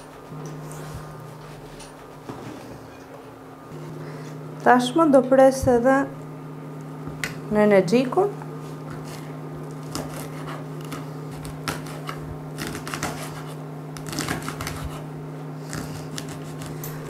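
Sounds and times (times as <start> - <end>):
steady low hum: 0.0 - 17.0
knife chopping on cutting board: 9.8 - 15.1, 15.7 - 17.0.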